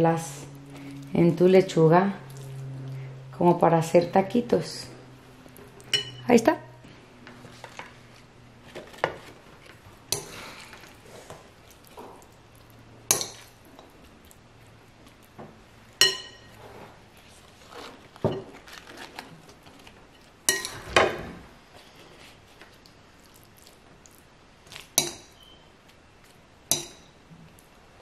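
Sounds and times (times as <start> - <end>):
metal spoon clinking glass bowl: 5.9 - 6.3, 16.0 - 16.6, 20.5 - 20.8
faint scraping and handling: 16.5 - 20.2, 21.6 - 22.8.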